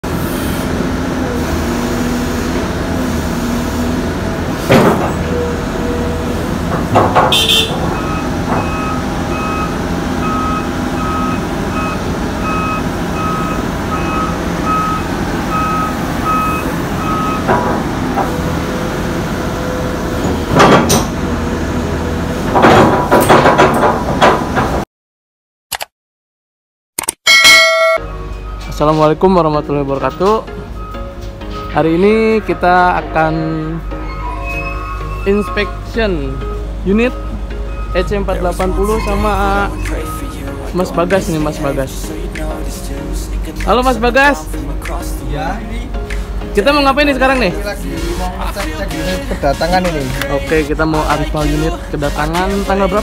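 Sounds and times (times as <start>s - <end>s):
excavator diesel rumble: 0.0s - 24.8s, 28.2s - 53.0s
warning alarm beeping: 7.3s - 17.5s, 30.7s - 41.5s.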